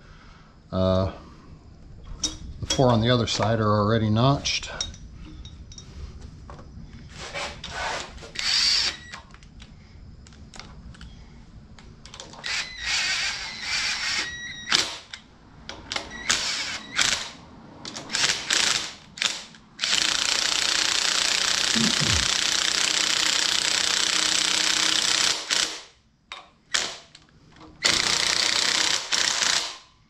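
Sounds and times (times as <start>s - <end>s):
impact driver bursts: 7.7s - 9.1s, 12.4s - 15.1s, 16.1s - 17.4s, 18.0s - 25.9s, 27.8s - 29.8s.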